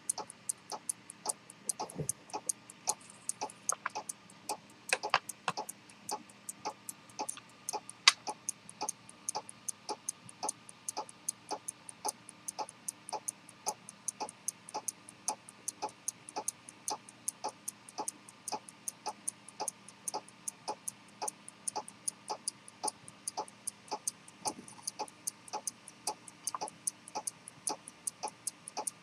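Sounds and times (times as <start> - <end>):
pocket watch ticking: 0.0 - 29.0.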